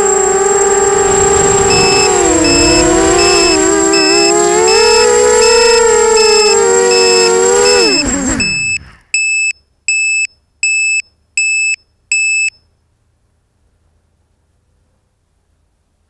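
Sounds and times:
drone motors whining: 0:00.0 - 0:09.2
electronic beeper beeps: 0:01.2 - 0:12.5.

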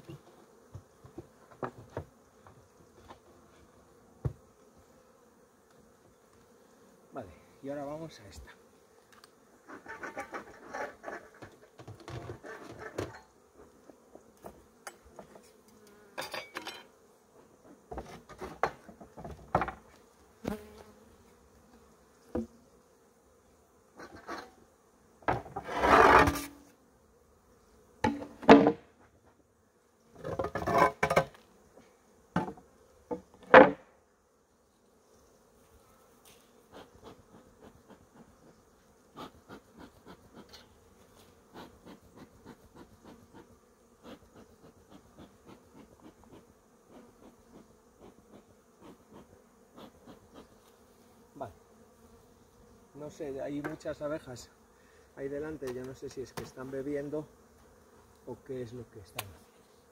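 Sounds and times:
honeybees buzzing: 0:00.0 - 0:59.9
wooden scrapes and knocks: 0:17.9 - 0:19.9, 0:25.3 - 0:26.6, 0:30.2 - 0:31.4.

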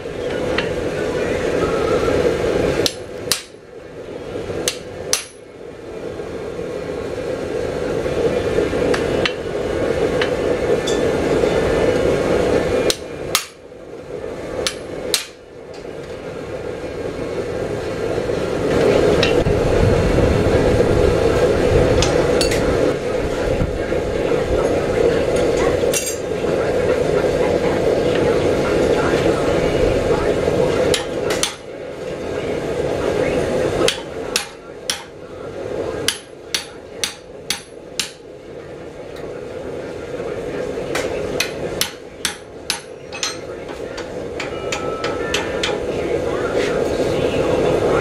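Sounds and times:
steady background noise: 0:00.0 - 0:48.0
hammer striking on anvil: 0:02.8 - 0:03.6, 0:04.6 - 0:05.5, 0:12.9 - 0:13.6, 0:14.6 - 0:15.4, 0:33.9 - 0:35.1, 0:36.1 - 0:38.2, 0:41.0 - 0:45.8.

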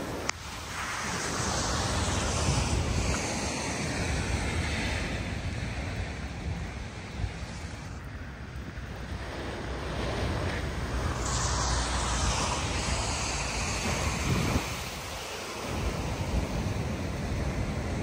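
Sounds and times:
wind rumbling on microphone: 0:00.0 - 0:18.0
surf breaking over rocks: 0:08.6 - 0:18.0.

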